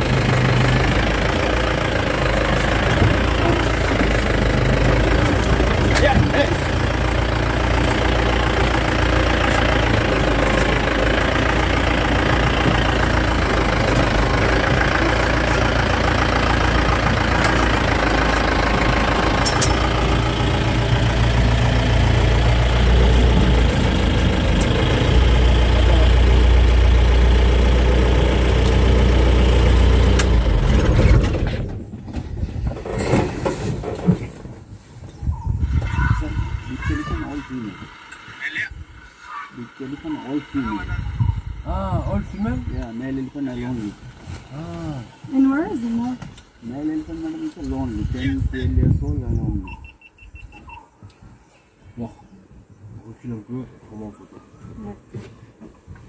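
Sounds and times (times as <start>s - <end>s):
vehicle engine idling: 0.0s - 32.1s.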